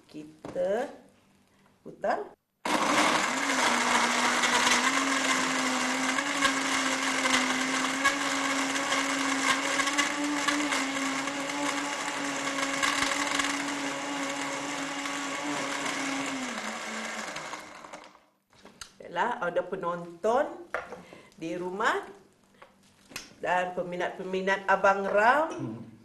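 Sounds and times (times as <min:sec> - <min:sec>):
blender motor running: 0:02.7 - 0:18.2.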